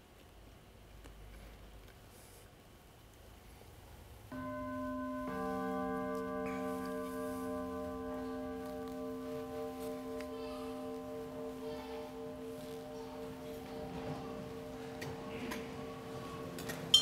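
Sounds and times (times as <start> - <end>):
organ holding a chord: 4.4 - 17.0.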